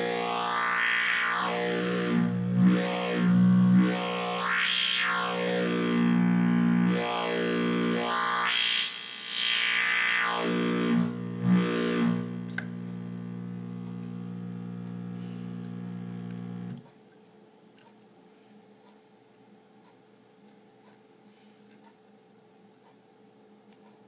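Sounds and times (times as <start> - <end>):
distorted synthesizer low note: 0.0 - 16.8.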